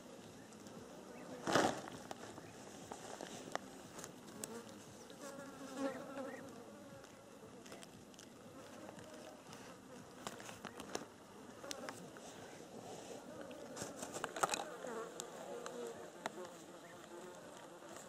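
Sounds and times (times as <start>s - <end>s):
flying insect buzzing: 3.7s - 7.6s.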